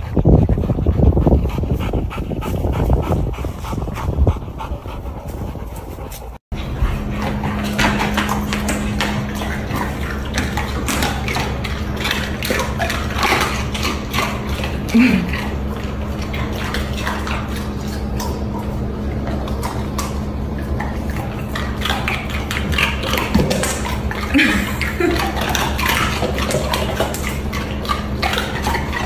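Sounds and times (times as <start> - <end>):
steady low hum: 0.0 - 29.0
dogs crunching ice cubes: 6.6 - 29.0.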